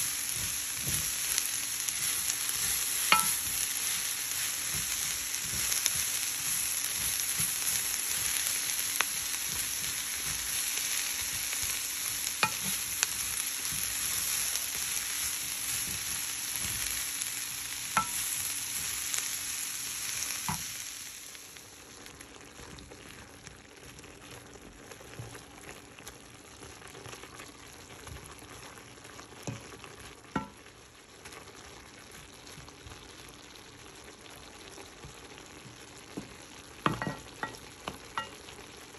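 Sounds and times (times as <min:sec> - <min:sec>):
vegetables sizzling in a pan: 0:00.0 - 0:38.9
wooden spatula knocking on pan: 0:02.6 - 0:03.6, 0:18.0 - 0:18.2, 0:30.4 - 0:30.6, 0:36.2 - 0:38.4.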